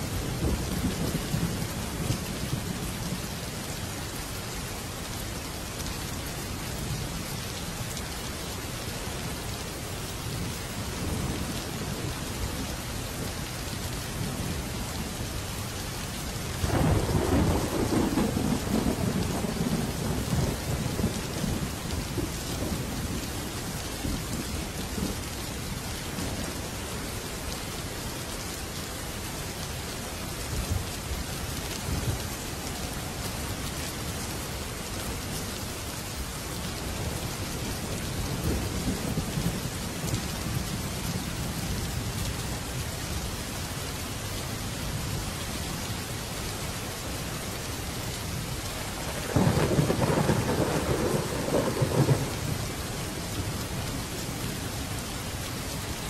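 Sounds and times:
heavy rain on wet ground: 0.0 - 56.0
thunder rumbling: 16.6 - 23.1, 49.0 - 52.6.

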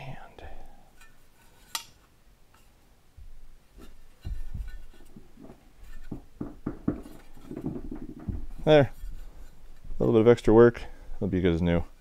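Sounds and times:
sheet steel handling clicks and knocks: 3.8 - 10.0.

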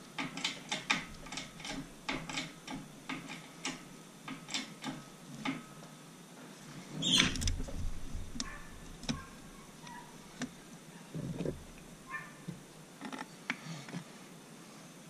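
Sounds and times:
metal parts and tools clicking: 0.2 - 5.7
brief squeaks: 7.0 - 7.5.

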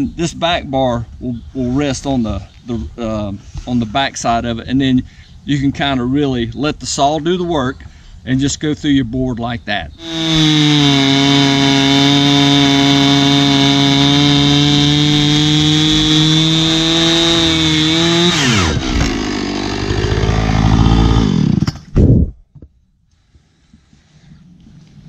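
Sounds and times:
chainsaw cutting wood: 10.0 - 22.1.

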